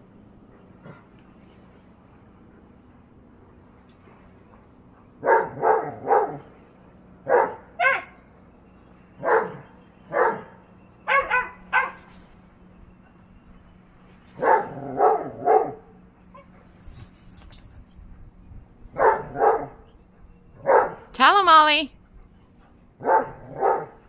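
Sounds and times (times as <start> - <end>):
puppy barking: 5.2 - 6.4, 7.3 - 8.2, 9.2 - 12.1, 14.4 - 15.8, 19.0 - 19.8, 20.6 - 21.0, 23.0 - 24.0.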